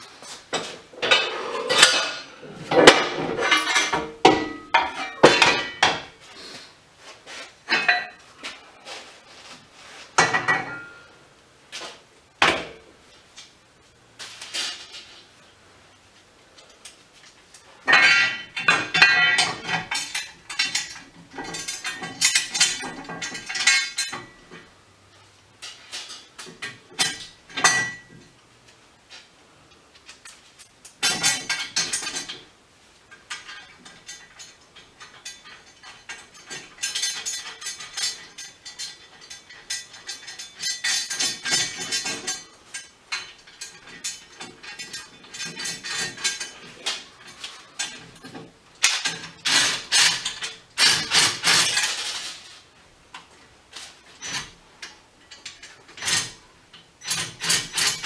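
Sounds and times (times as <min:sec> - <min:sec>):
steel parts clinking and knocking: 0:00.5 - 0:06.1, 0:16.6 - 0:24.7, 0:25.6 - 0:28.2, 0:30.0 - 0:32.4, 0:33.1 - 0:58.0.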